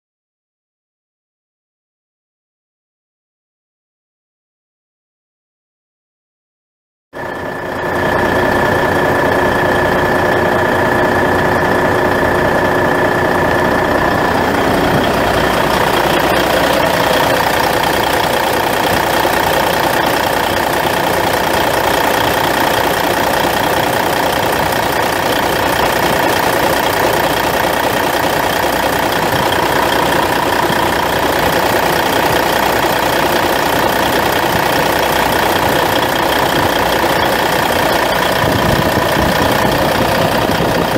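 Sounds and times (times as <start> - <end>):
diesel truck engine idling: 7.2 - 40.9
high whine: 7.2 - 40.9.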